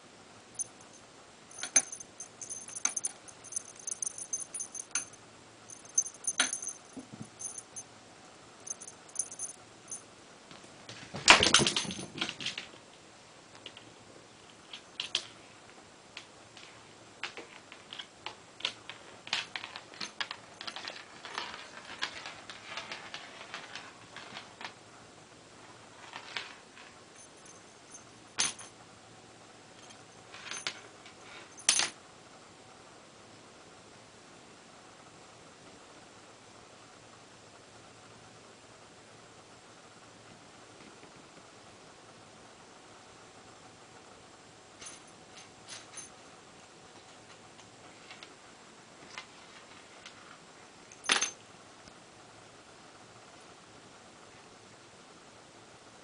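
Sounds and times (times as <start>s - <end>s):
light clicks and rattles: 0.6s - 7.8s, 8.7s - 10.0s
small bell jingling: 0.6s - 7.8s, 8.6s - 10.0s, 27.2s - 28.6s.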